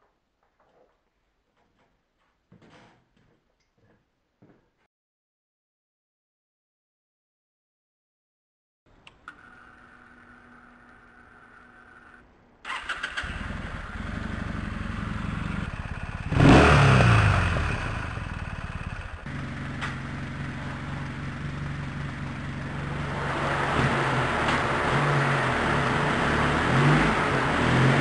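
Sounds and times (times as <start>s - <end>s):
motorcycle engine starting and idling: 9.0s - 28.0s
motorcycle engine revving: 11.4s - 28.0s.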